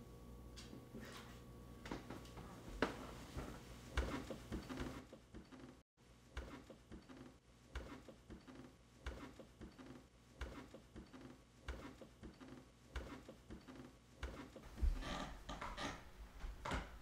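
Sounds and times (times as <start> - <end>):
slow footsteps on wooden floor: 14.7 - 17.0.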